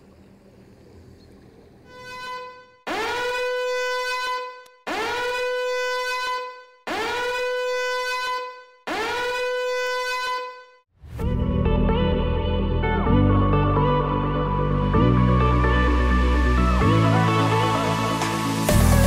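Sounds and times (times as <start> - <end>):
horn blasts: 1.8 - 10.9
music: 11.0 - 19.0.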